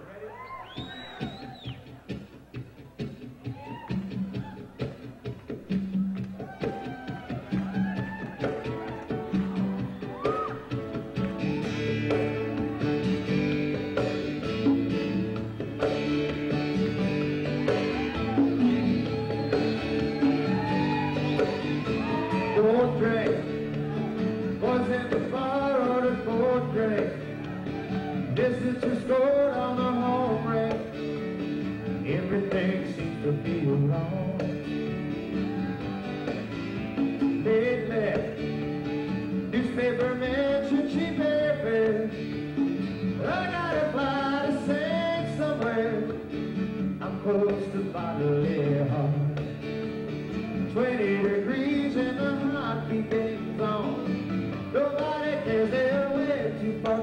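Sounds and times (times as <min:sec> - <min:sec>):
man singing: 0:21.8 - 0:35.7, 0:37.2 - 0:42.6, 0:43.2 - 0:49.6, 0:50.5 - 0:57.0.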